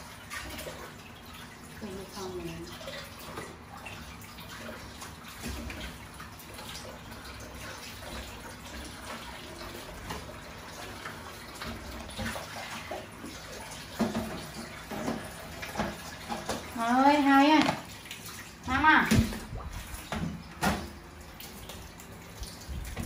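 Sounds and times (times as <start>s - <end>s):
water running into sink: 0.0s - 23.0s
knocks and clatters in sink: 13.8s - 18.0s, 18.7s - 21.0s.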